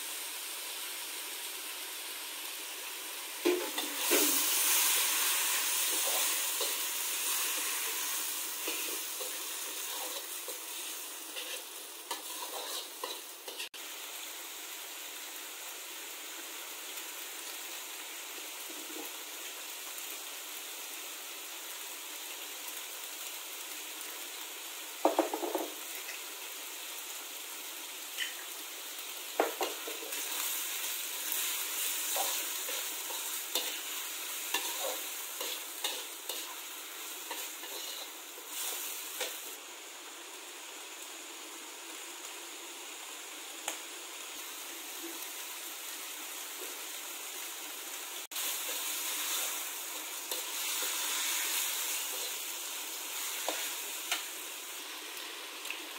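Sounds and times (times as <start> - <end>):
food sizzling in a wok: 0.0 - 55.9
metal spatula scraping wok: 3.5 - 13.8, 37.2 - 39.4.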